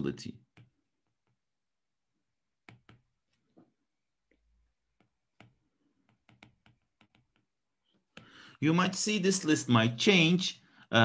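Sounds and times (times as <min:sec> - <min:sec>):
stylus tapping on pen tablet: 0:00.4 - 0:01.6, 0:02.6 - 0:03.6, 0:04.3 - 0:08.4.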